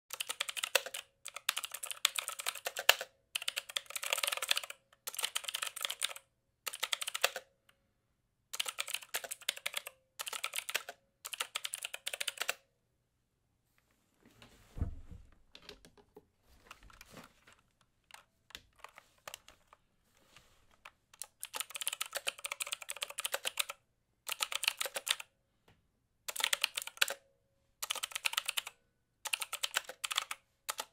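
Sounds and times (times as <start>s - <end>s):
mechanical keyboard typing: 0.1s - 7.5s, 8.5s - 12.6s, 18.0s - 19.8s, 20.8s - 25.3s, 26.3s - 27.2s, 27.8s - 30.9s
soft low thump: 14.7s - 15.4s.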